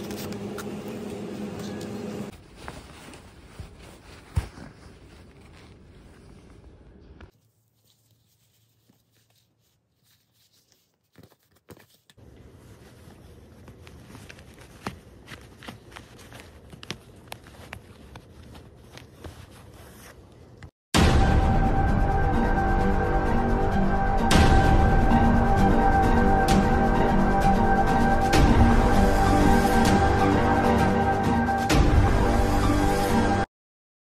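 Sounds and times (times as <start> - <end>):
denim rustling: 0.0 - 20.7.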